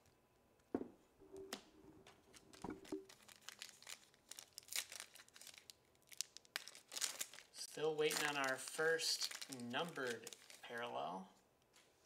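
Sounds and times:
foil wrapper crinkling: 0:02.2 - 0:11.1.

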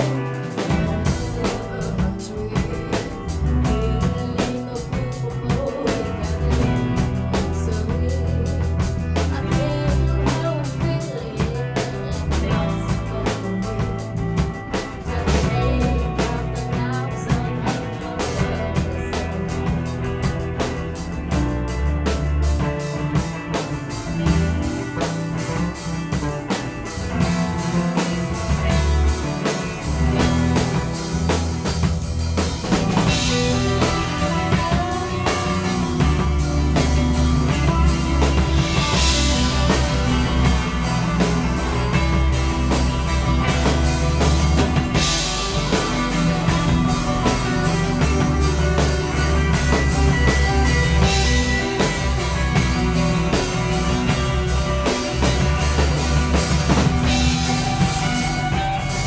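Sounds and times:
rock band playing instrumental: 0:00.0 - 0:59.0.

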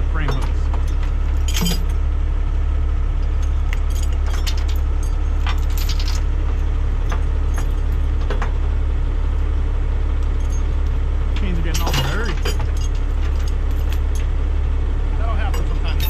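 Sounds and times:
chains clinking and rattling: 0:00.0 - 0:02.1, 0:03.3 - 0:08.5, 0:10.4 - 0:14.4, 0:15.2 - 0:16.0
truck engine running: 0:00.0 - 0:16.0.

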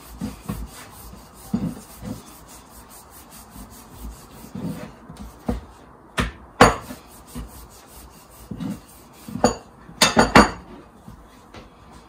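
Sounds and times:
rolling pin rubbing dough: 0:00.0 - 0:05.9, 0:06.7 - 0:09.7.

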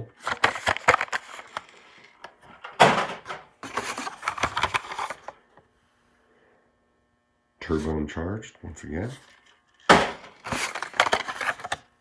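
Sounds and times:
card stock rustling: 0:00.2 - 0:02.1, 0:03.6 - 0:05.3, 0:09.1 - 0:11.8.

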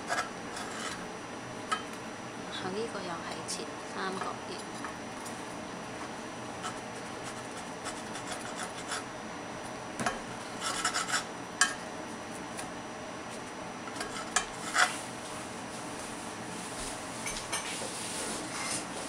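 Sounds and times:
knife scraping on a pan: 0:00.0 - 0:01.1, 0:06.6 - 0:09.1, 0:10.5 - 0:11.8, 0:13.9 - 0:15.0, 0:17.2 - 0:19.0.

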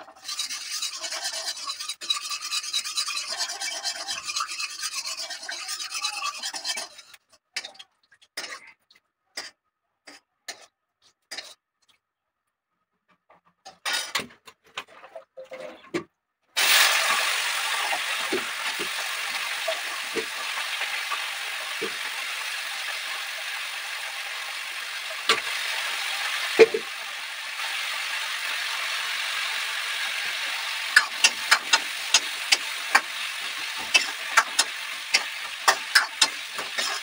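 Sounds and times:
scraping vegetables: 0:00.0 - 0:07.2, 0:30.5 - 0:37.0.

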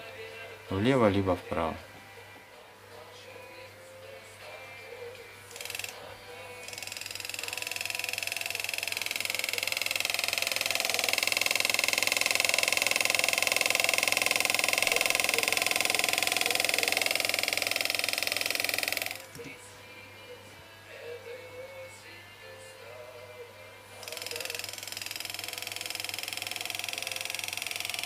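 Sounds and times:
engraving tool buzzing on metal: 0:05.5 - 0:19.4, 0:24.0 - 0:28.0.

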